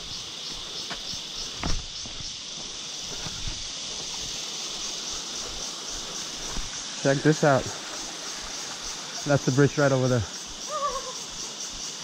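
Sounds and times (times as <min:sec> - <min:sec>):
insects droning: 0:00.0 - 0:12.0
footsteps or knocks on rock: 0:00.9 - 0:02.3, 0:06.4 - 0:06.8.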